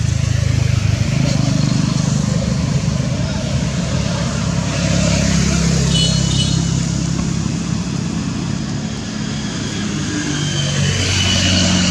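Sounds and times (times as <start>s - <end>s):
vehicle engine running: 0.0s - 5.9s.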